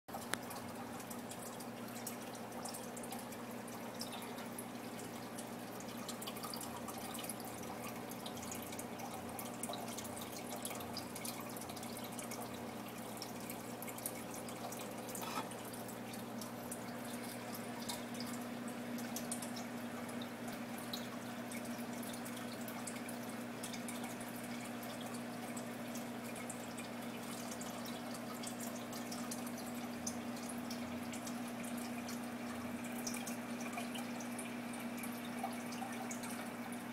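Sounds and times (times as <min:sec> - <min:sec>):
aquarium filter humming: 0:00.1 - 0:36.9
trickling and dripping water: 0:00.1 - 0:36.9.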